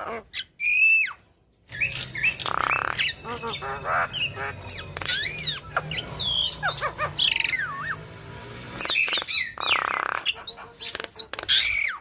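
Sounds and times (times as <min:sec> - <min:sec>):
bird singing whistles and clicks: 0:01.7 - 0:03.2, 0:04.7 - 0:06.6, 0:08.8 - 0:12.0.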